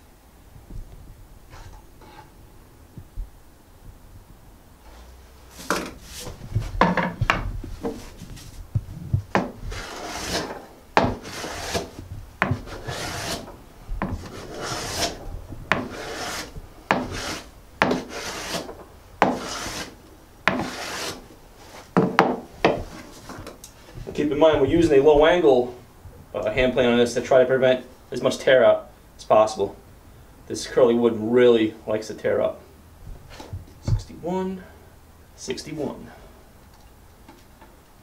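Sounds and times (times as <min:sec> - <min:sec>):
hand plane scraping wood: 0:09.3 - 0:24.2.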